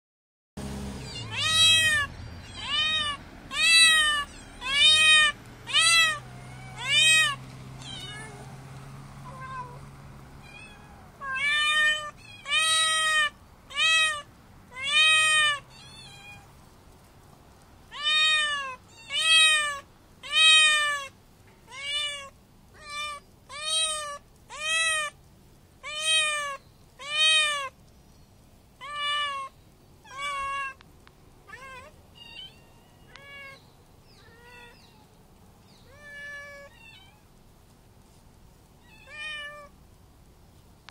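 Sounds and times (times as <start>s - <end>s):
cat meowing loudly: 1.0s - 8.5s, 9.3s - 9.8s, 10.4s - 16.5s, 17.9s - 25.2s, 25.8s - 27.8s, 28.8s - 30.8s, 31.4s - 33.6s, 34.2s - 35.1s, 35.8s - 37.3s, 38.8s - 39.8s.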